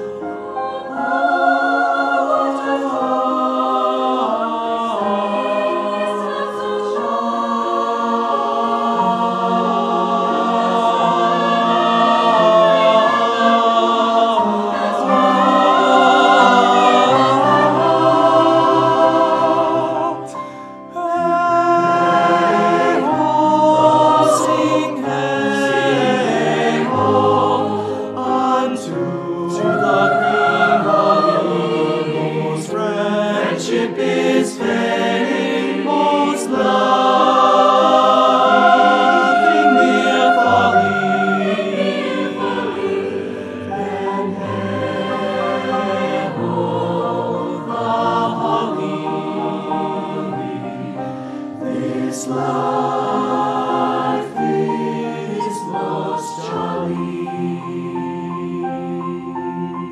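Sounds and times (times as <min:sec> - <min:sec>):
large choir singing: 0:00.0 - 0:59.9.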